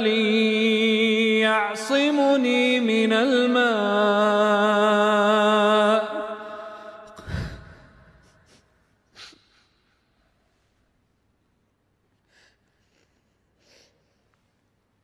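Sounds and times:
faint sniff: 7.2 - 10.6, 12.2 - 14.6.

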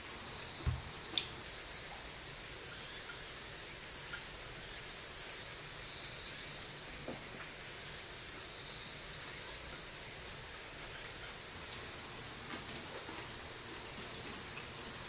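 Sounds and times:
fire crackling and popping: 0.0 - 15.0
food sizzling on grill: 0.0 - 15.0
soft thump: 0.6 - 0.8.

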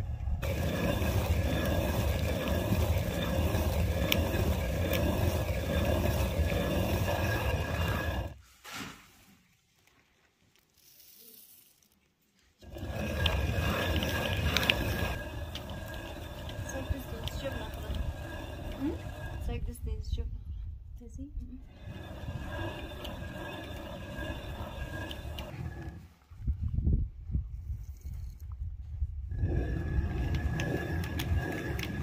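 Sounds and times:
stone quern grinding grain: 0.1 - 8.4, 10.5 - 12.0, 12.6 - 20.1, 21.6 - 26.2, 29.3 - 32.0.

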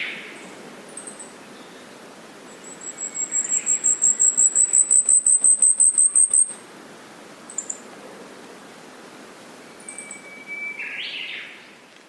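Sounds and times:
bird singing high-pitched notes: 2.6 - 6.6, 9.7 - 11.5.

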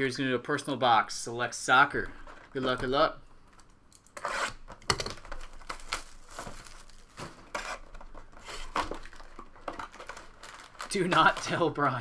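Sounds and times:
cellophane crinkling and tearing: 4.5 - 12.0.

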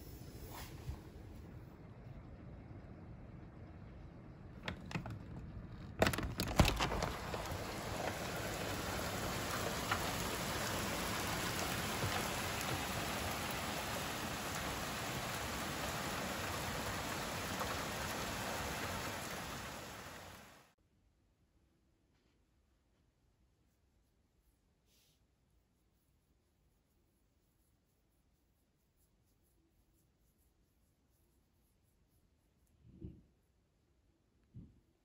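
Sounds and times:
rain on a roof and street: 1.1 - 20.8.

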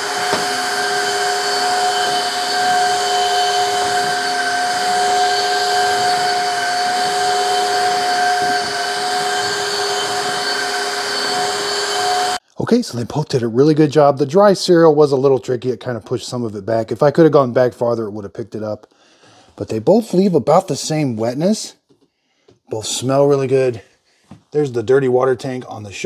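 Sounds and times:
vacuum mop motor whine: 0.0 - 12.4.

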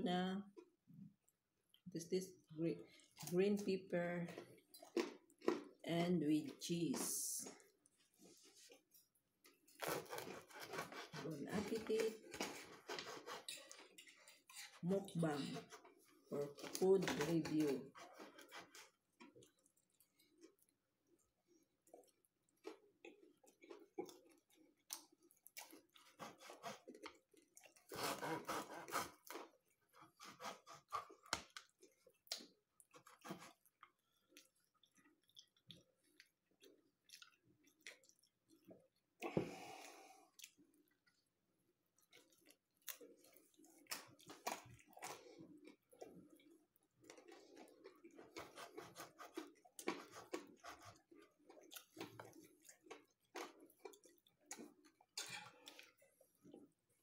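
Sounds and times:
person chewing and biting: 4.4 - 5.8, 8.7 - 11.2, 21.8 - 39.0, 42.0 - 56.7.

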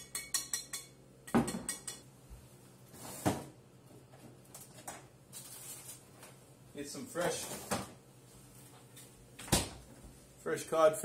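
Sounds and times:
utensil clinking on mixing bowl: 0.0 - 2.1.

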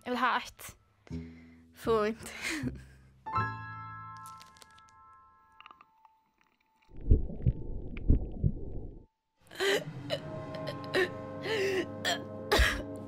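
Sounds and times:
muffled chewing: 5.5 - 6.9
steady sustained music: 9.6 - 13.0.

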